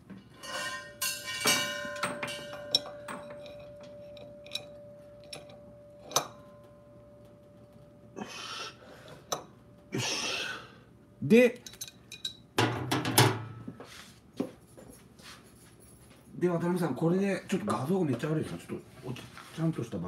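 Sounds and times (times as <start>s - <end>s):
steady metallic ringing tone: 0.0s - 10.0s
wrench clinking on metal fitting: 0.4s - 6.4s, 11.6s - 12.5s.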